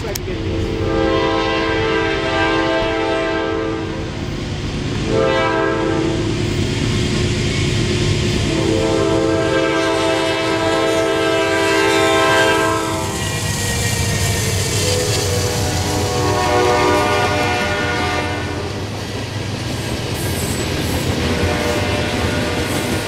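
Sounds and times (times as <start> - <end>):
low rumble of train: 0.0 - 23.0
train air horn blasts: 0.5 - 4.1, 5.0 - 6.5, 8.5 - 18.8, 21.2 - 23.0.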